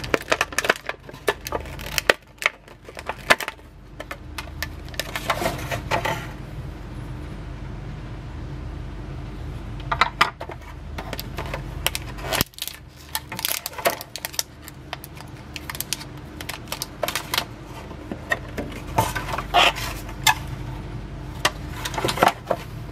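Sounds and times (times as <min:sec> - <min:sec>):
plastic packaging crinkling: 0:00.0 - 0:06.2, 0:10.4 - 0:20.6, 0:21.2 - 0:22.9.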